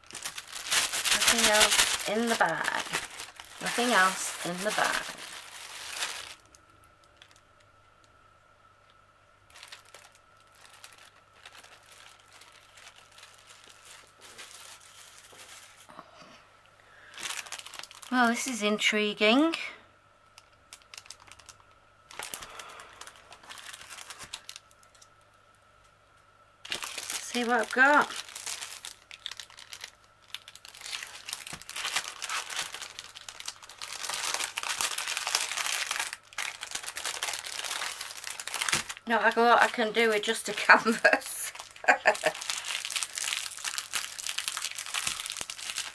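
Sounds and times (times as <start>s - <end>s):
plastic bag crinkling: 0.0s - 7.7s, 9.5s - 15.9s, 17.0s - 19.6s, 20.3s - 25.2s, 26.6s - 45.9s.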